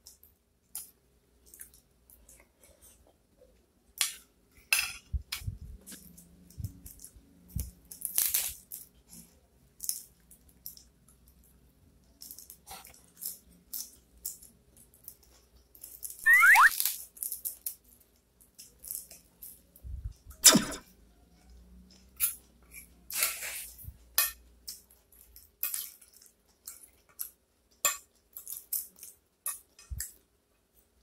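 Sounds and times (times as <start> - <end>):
lettuce crunching and tearing: 8.0 - 8.8.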